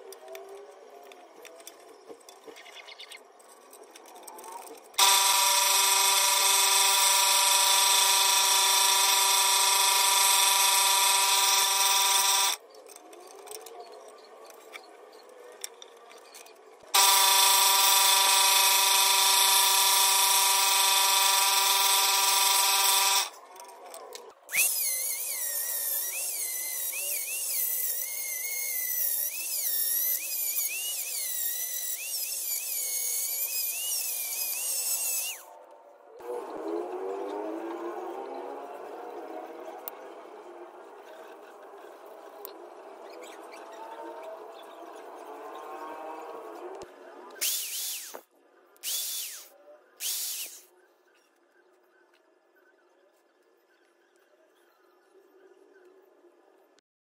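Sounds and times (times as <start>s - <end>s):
rotary tool high whine: 3.3s - 15.6s, 16.2s - 35.6s, 47.4s - 50.7s
scroll saw running: 5.0s - 12.6s, 17.0s - 23.4s, 24.5s - 35.5s, 47.4s - 48.2s, 48.8s - 50.7s.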